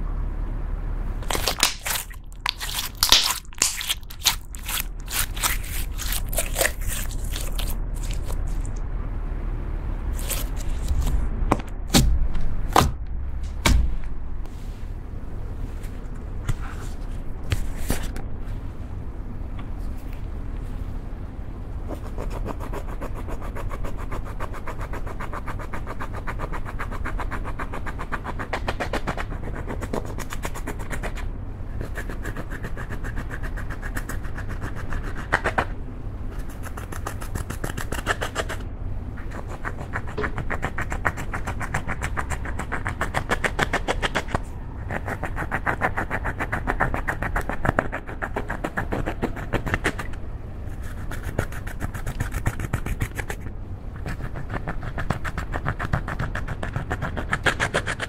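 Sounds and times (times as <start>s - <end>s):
slime squeezed with pops: 1.2s - 8.4s
spatula scraping eyeshadow: 1.2s - 8.8s.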